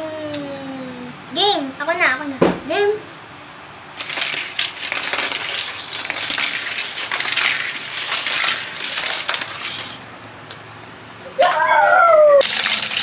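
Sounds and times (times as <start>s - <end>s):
toy cars clattering down track: 4.0s - 10.1s, 12.4s - 13.0s.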